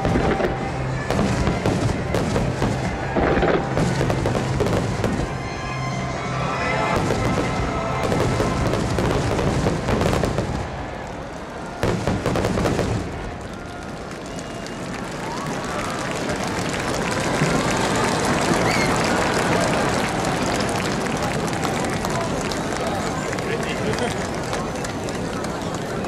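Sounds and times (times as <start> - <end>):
music: 0.0 - 10.7.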